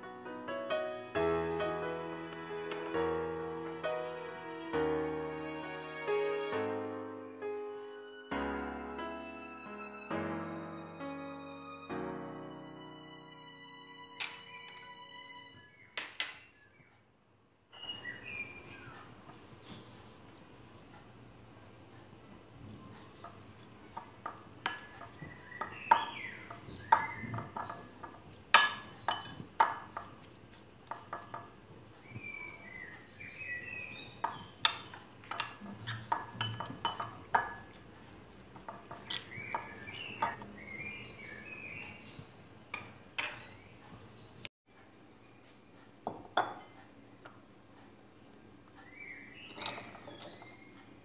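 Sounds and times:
birds chirping: 17.7 - 20.8, 22.7 - 29.7, 32.0 - 37.5, 38.7 - 44.5, 48.7 - 51.0
spoon scraping ceramic bowl: 35.3 - 37.8.

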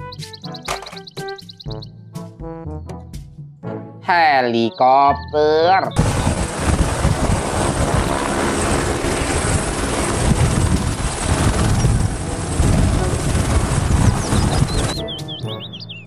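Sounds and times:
helicopter rotor and engine: 6.0 - 15.4.

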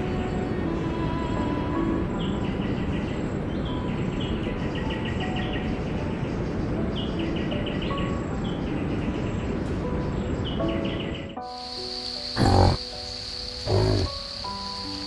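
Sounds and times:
rapid chirping trills: 12.4 - 12.8, 13.6 - 14.3.

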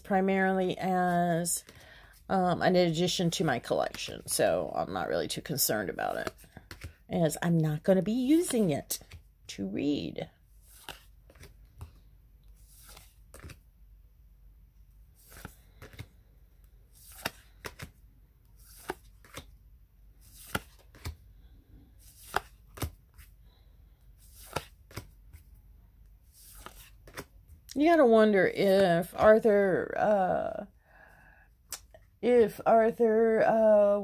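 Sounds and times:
cards flipped by hand: 6.2 - 7.0, 8.3 - 9.2, 10.6 - 13.6, 15.2 - 19.6, 20.2 - 21.2, 22.0 - 23.3, 24.2 - 25.5, 26.3 - 27.6.

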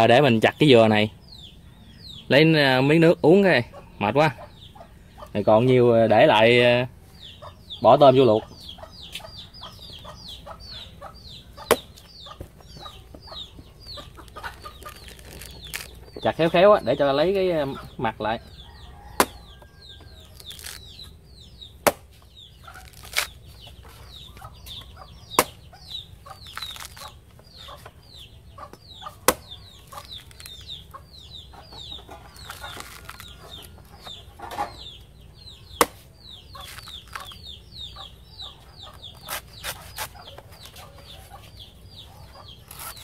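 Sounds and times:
chickens calling: 0.0 - 43.0
machete chopping coconut: 11.6 - 12.0, 19.2 - 19.6, 20.4 - 20.9, 21.8 - 23.4, 25.3 - 25.7, 28.8 - 30.5, 35.7 - 36.1.

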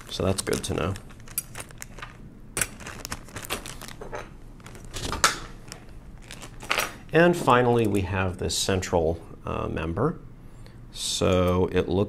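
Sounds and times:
small metal parts clicking: 1.2 - 2.8.

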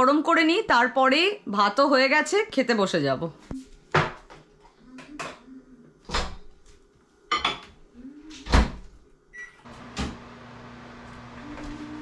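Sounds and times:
dishes knocking and clinking: 3.9 - 4.4, 7.3 - 7.8.

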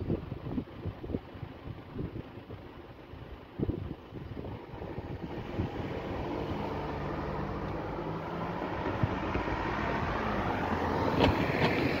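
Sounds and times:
car engines running: 0.0 - 12.0.

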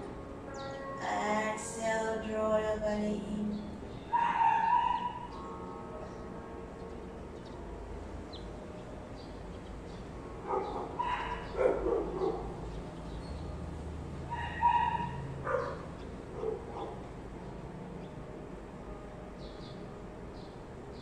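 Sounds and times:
dog barking and yipping: 4.1 - 5.3, 10.4 - 12.6, 14.3 - 17.0.

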